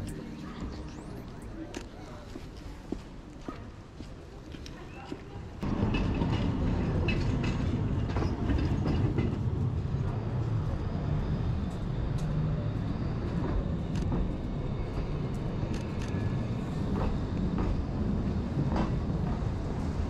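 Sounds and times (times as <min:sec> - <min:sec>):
street ambience: 0:00.0 - 0:20.0
rolling vehicle rumble: 0:05.6 - 0:20.0.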